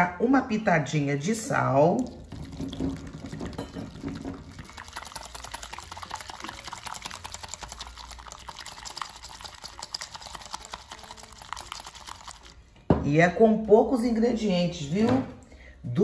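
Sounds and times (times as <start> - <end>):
whisk beating egg in glass bowl: 1.9 - 12.6.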